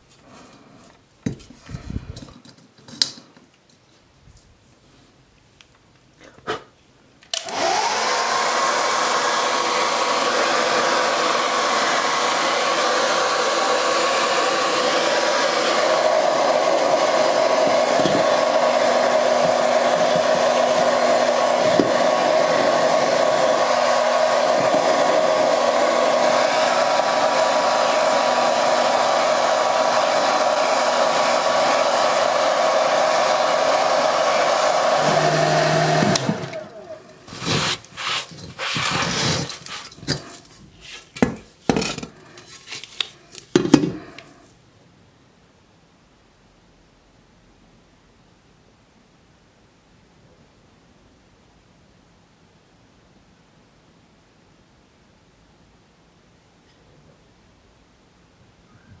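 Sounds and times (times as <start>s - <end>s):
hair dryer running: 7.3s - 40.5s.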